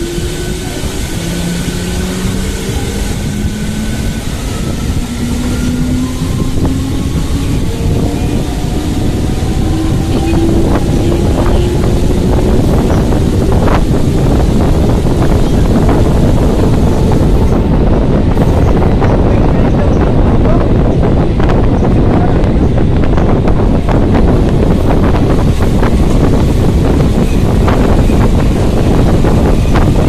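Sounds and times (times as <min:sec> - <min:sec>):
electric train motors whining: 0:00.0 - 0:18.1
train running noise: 0:00.0 - 0:30.0
wind buffeting microphone: 0:00.0 - 0:30.0.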